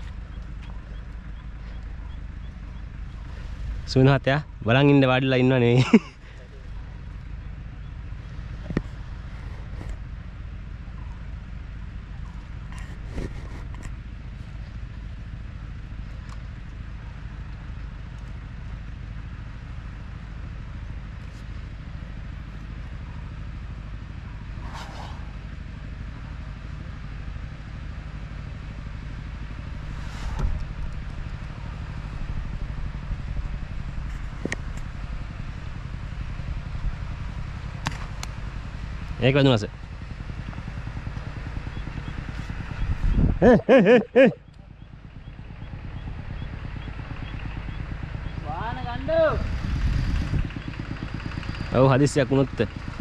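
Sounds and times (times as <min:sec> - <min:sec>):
low outdoor rumble: 0:00.0 - 0:53.0
short hissing sounds: 0:24.6 - 0:25.4.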